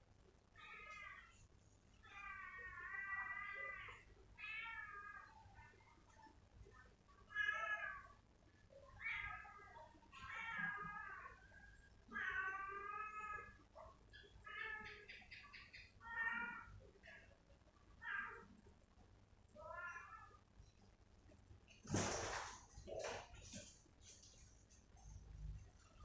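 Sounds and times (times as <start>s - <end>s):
cat meowing: 9.0s - 11.5s, 19.6s - 20.4s.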